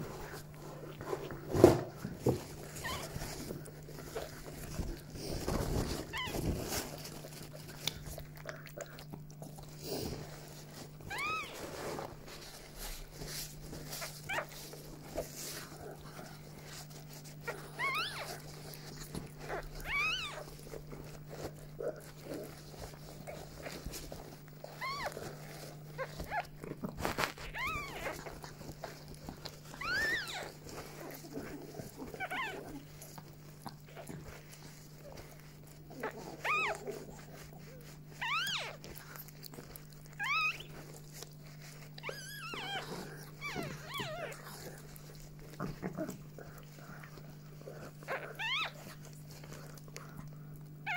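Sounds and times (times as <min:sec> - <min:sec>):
puppy squealing: 0:02.8 - 0:03.3, 0:06.1 - 0:06.5, 0:11.1 - 0:11.7, 0:17.7 - 0:18.4, 0:19.4 - 0:20.5, 0:24.6 - 0:25.2, 0:27.4 - 0:28.4, 0:29.7 - 0:32.8, 0:35.1 - 0:37.0, 0:37.6 - 0:39.0, 0:40.2 - 0:40.8, 0:41.4 - 0:44.8, 0:48.0 - 0:49.1.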